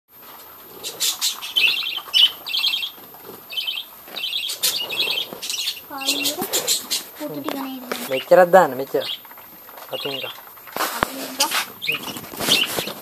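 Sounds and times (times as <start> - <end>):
parrots chirping: 0.4 - 13.0
plastic bag crinkling: 7.4 - 13.0.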